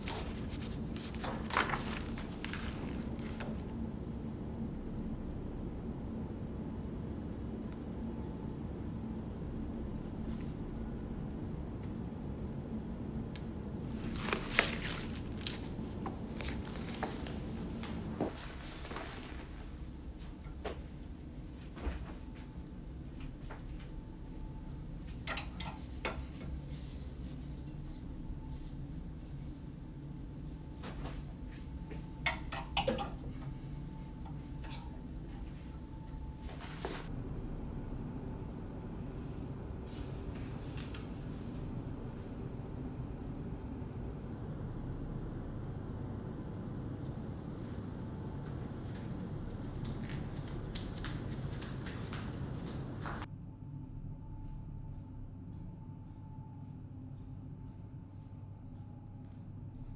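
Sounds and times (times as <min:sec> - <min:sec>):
soft footsteps: 0:00.0 - 0:03.8, 0:13.9 - 0:23.9, 0:48.4 - 0:53.3
low rumble of ambience: 0:00.0 - 0:59.9
low steady hum: 0:00.0 - 0:59.9.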